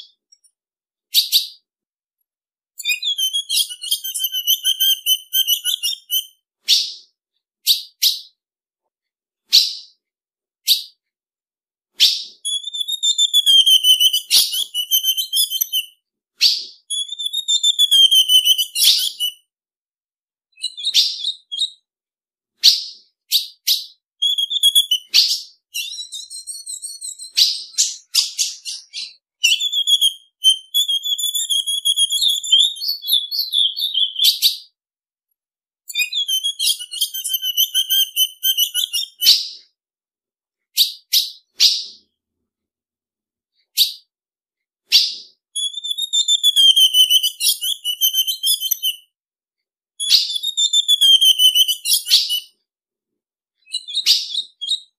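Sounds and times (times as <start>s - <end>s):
bird chip notes and chattering: 2.8s - 6.3s, 12.5s - 15.9s, 24.2s - 34.3s, 35.9s - 39.3s, 45.6s - 49.0s.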